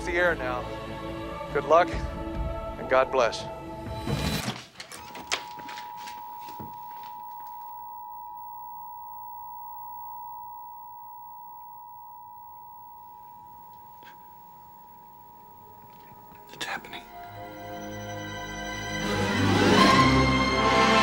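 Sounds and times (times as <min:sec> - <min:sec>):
test pattern beep tone: 0:17.1 - 0:19.7.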